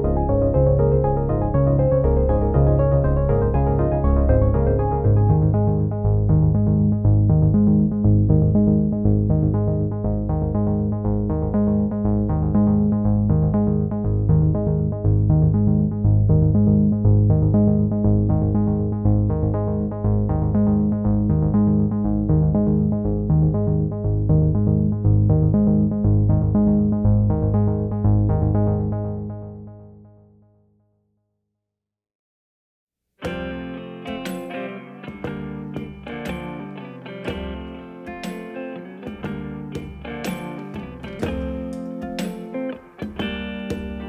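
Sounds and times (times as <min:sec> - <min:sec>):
synthesizer music: 0:00.0 - 0:30.0.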